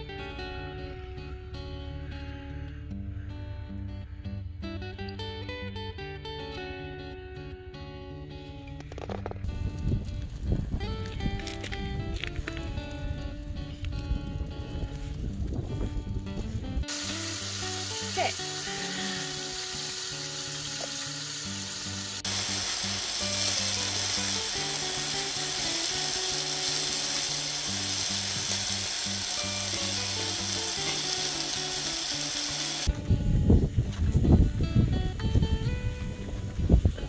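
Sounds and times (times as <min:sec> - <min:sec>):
background music: 0:00.0 - 0:14.4, 0:16.4 - 0:37.0
vegetables sizzling in a frying pan: 0:16.9 - 0:32.9.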